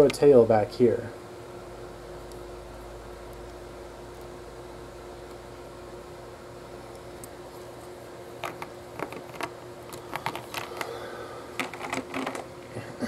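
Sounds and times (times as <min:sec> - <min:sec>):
faint steady hum: 0:00.0 - 0:13.0
plastic bricks clicking: 0:11.6 - 0:12.5.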